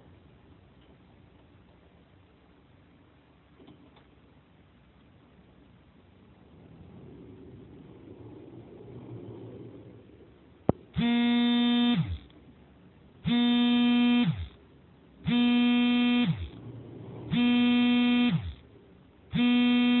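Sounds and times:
electric warning buzzer: 10.9 - 12.3, 13.2 - 14.6, 15.2 - 16.6, 17.3 - 18.6, 19.3 - 20.0.

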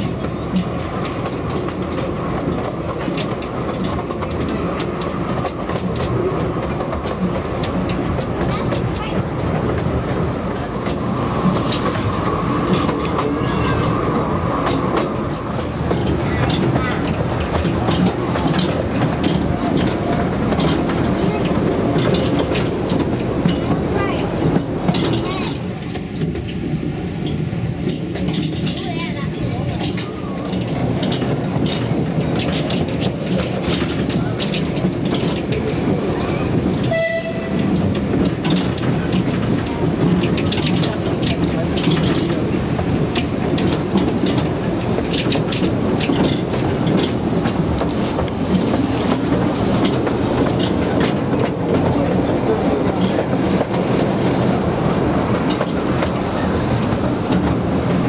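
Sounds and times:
train rolling rumble: 0.0 - 58.0
wheel clicks over rail joints: 0.0 - 58.0
short train horn: 36.8 - 37.7.

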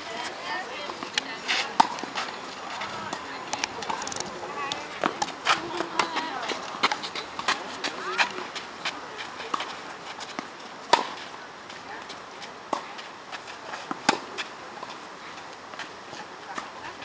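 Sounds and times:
tennis ball hits and bounces: 0.9 - 6.2, 10.9 - 11.3, 13.7 - 14.9.

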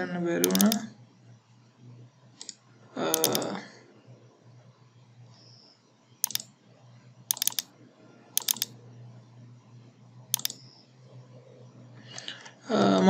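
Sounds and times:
faint low hum: 0.0 - 13.0
mouse button clicking: 0.4 - 0.8, 6.2 - 6.5, 7.3 - 7.7, 8.4 - 8.7, 10.3 - 10.7.

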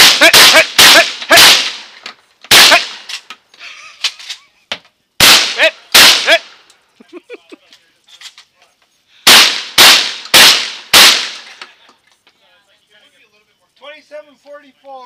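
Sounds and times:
shotgun blasts with echo: 0.0 - 1.9, 2.5 - 3.1, 5.2 - 6.6, 9.3 - 11.6.

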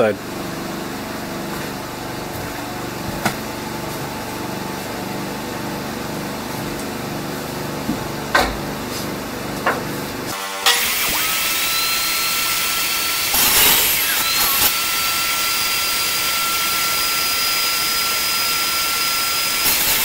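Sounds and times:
mechanical hum with low pulse: 0.0 - 10.4.

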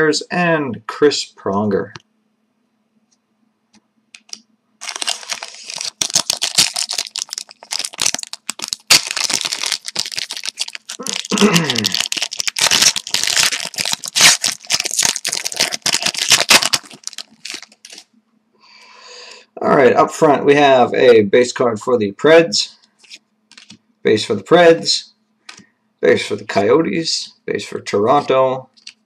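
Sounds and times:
wrapper tearing and crinkling: 4.2 - 18.1.

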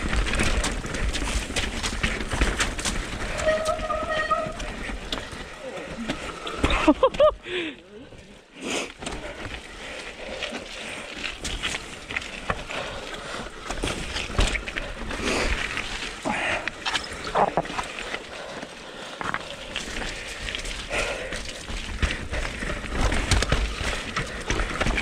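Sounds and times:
bike rattling over bumps: 0.0 - 5.6, 19.8 - 25.0
bike tyres rolling over dirt: 0.0 - 25.0.

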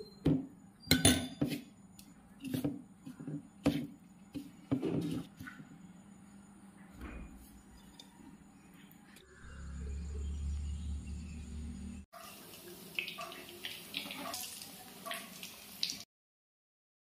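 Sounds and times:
meat sizzling in hot oil: 12.2 - 16.1.

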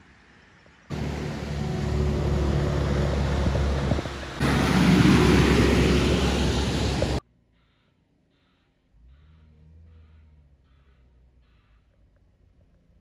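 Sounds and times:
diesel truck engine running: 0.9 - 7.2.

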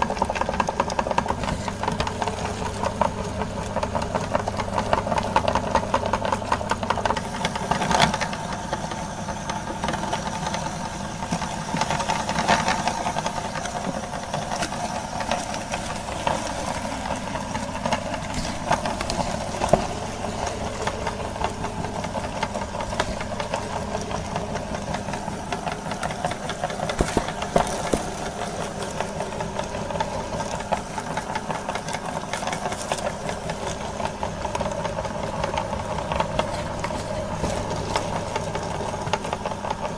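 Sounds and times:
apple crackling in grinder: 0.0 - 39.9
meat grinder motor humming: 0.0 - 39.9.

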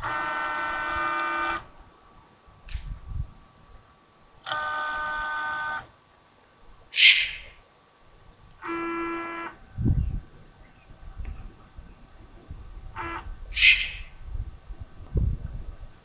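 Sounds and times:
owl raspy hiss: 6.9 - 7.6, 13.5 - 14.2
horn blasts: 8.6 - 9.6, 12.9 - 13.3.

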